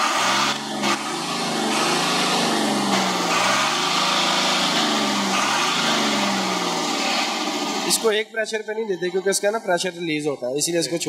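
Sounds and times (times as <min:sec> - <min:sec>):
diesel truck engine revving: 0:00.0 - 0:08.2.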